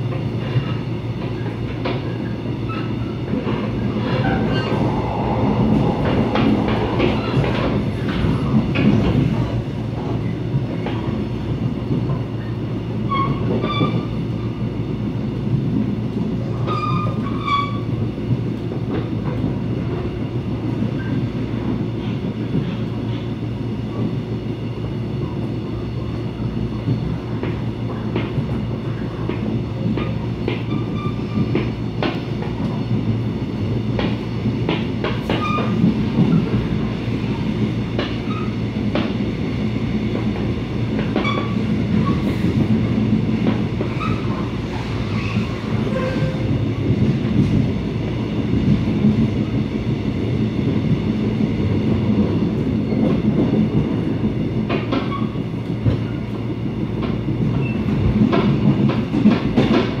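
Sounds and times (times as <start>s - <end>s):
train clicks and knocks: 0.0s - 4.7s, 6.6s - 60.0s
train wheels rumbling on rails: 0.0s - 60.0s.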